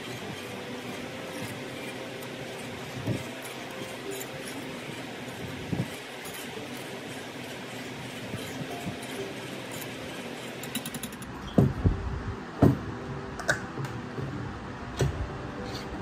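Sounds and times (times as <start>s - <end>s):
whisk stirring in a pan: 0.0s - 11.4s.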